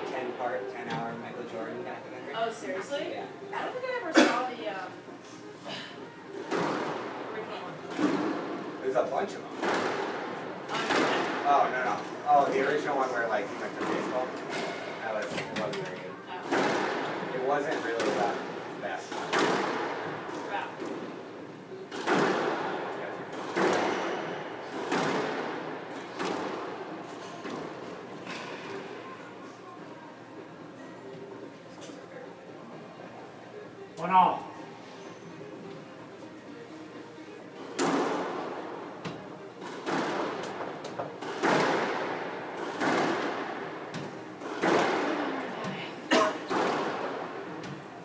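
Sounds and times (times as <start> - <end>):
squash ball thwacks: 9.6 - 11.4, 16.5 - 17.1, 19.1 - 19.9, 21.9 - 22.6, 23.3 - 24.1, 24.7 - 26.6, 37.8 - 38.4, 39.6 - 40.6, 41.2 - 45.2.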